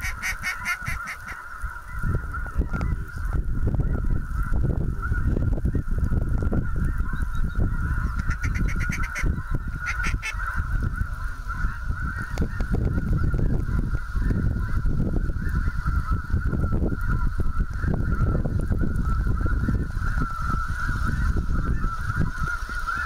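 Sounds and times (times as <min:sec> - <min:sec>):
sharp high goose calls: 0:00.0 - 0:03.1, 0:06.7 - 0:14.8
geese honking: 0:00.0 - 0:23.0
wind rumbling on microphone: 0:00.0 - 0:23.0.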